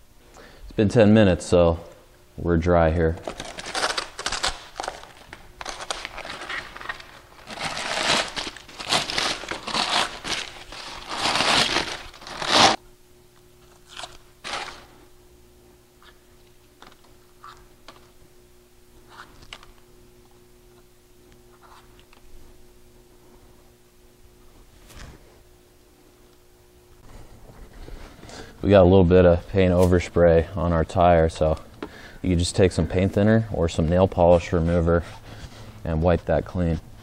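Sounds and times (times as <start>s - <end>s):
faint steady hum: 0.0s - 37.0s
foil crinkling and tearing: 3.2s - 12.8s, 13.9s - 14.9s.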